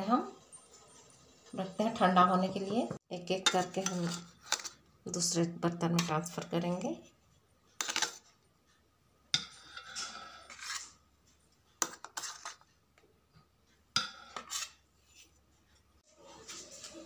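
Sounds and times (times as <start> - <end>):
spoon scraping metal steamer: 3.4 - 6.8, 7.8 - 8.3, 9.4 - 11.0, 11.8 - 12.7, 14.0 - 15.3.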